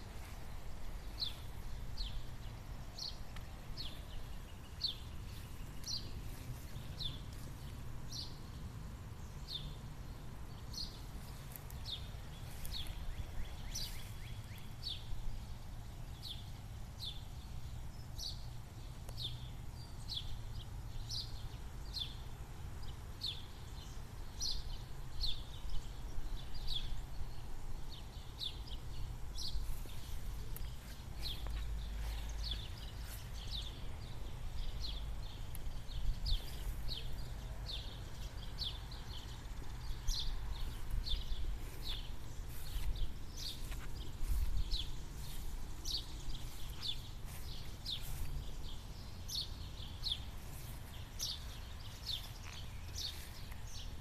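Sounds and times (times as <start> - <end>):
bird chirping: 0.0 - 54.0
wind rumble on microphone: 25.1 - 52.2.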